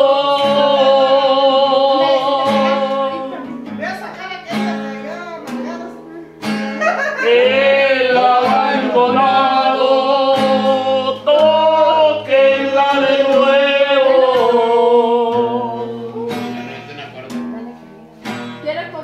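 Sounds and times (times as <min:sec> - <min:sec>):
man singing with vibrato: 0:00.0 - 0:03.8, 0:07.0 - 0:17.4
acoustic guitar strums: 0:00.0 - 0:19.0.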